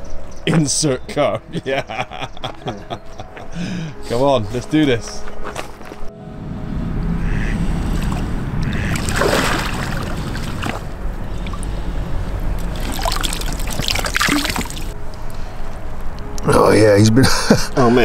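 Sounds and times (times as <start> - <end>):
steady low rumble: 6.1 - 16.2
water splashing and sloshing: 7.2 - 15.0
water draining: 12.6 - 15.0.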